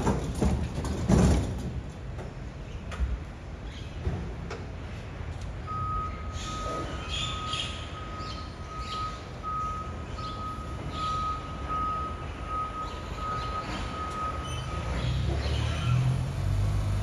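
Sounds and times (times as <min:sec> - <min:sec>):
reversing alarm beeping: 0:05.6 - 0:15.2.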